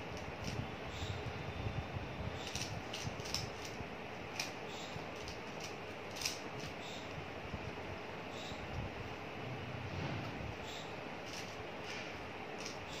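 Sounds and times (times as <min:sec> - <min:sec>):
puzzle cube clicking: 0:02.4 - 0:04.6, 0:05.2 - 0:06.8.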